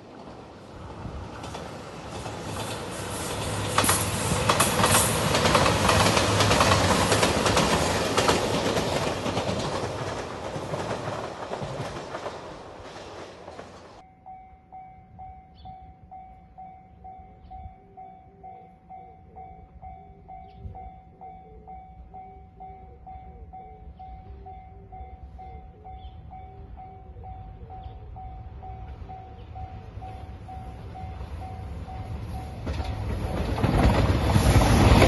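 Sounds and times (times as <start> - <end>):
train wheels clacking over rail joints: 1.3 - 14.0, 32.6 - 35.0.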